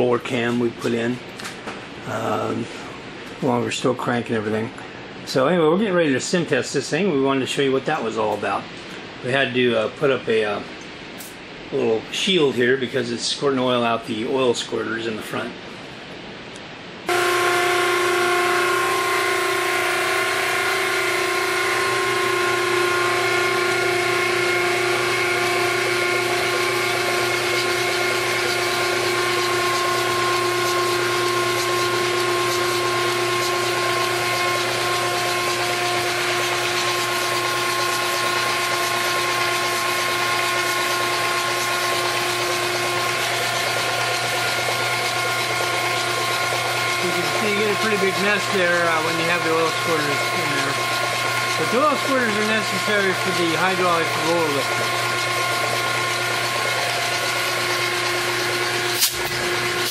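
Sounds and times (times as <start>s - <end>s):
engine spun by electric drive: 17.0s - 59.9s.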